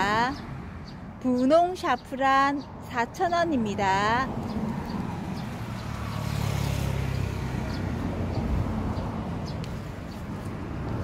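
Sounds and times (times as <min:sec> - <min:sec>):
motor vehicle passing: 0:02.6 - 0:11.0.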